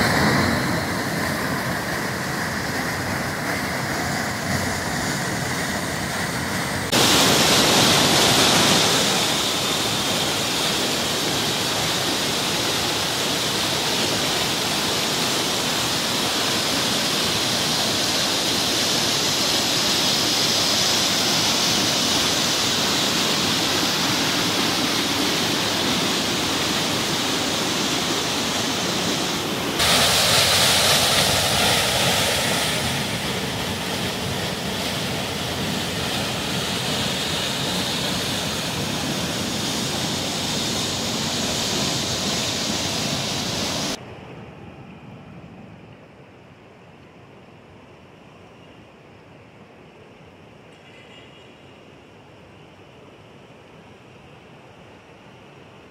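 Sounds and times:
water rushing over boulders: 0:00.0 - 0:44.0.

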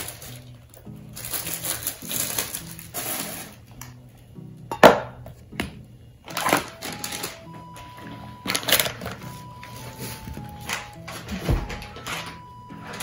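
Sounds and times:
plastic bag crinkling: 0:00.0 - 0:03.6, 0:06.3 - 0:07.5
soft background music: 0:00.0 - 0:13.0.

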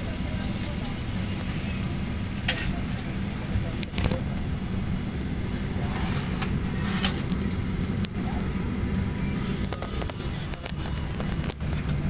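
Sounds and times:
airliner cabin drone: 0:00.0 - 0:12.0
sharp clicks: 0:09.6 - 0:12.0.

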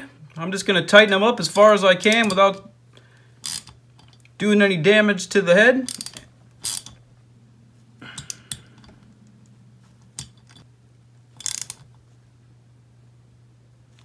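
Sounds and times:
hand ratchet clicking: 0:02.0 - 0:02.4, 0:03.4 - 0:04.3, 0:05.8 - 0:07.0, 0:11.4 - 0:11.8.

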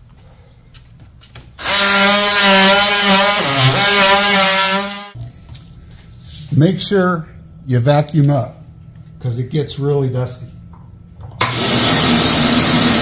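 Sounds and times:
oscillating multi-tool cutting foam: 0:01.6 - 0:05.2.

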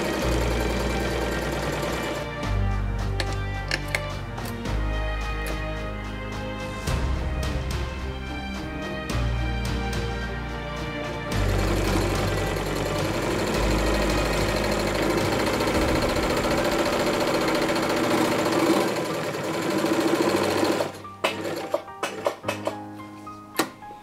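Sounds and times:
sewing machine running: 0:00.0 - 0:02.4, 0:11.4 - 0:21.8.

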